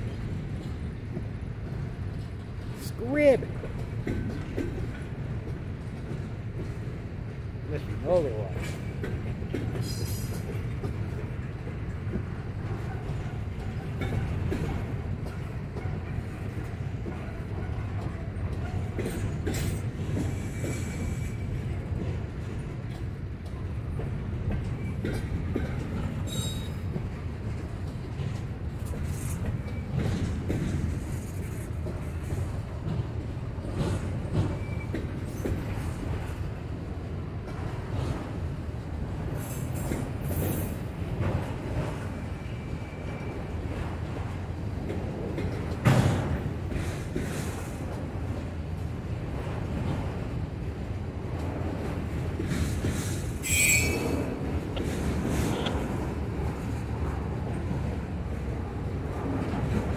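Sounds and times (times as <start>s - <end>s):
train wheels rumbling on rail: 0.0s - 59.9s
high-pitched wheel squeals: 53.4s - 54.3s.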